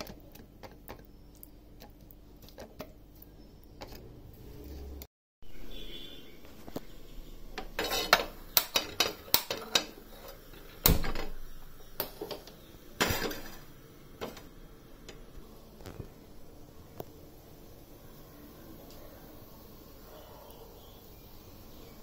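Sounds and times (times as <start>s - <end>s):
metal griddle clinking and knocking: 7.5s - 11.4s.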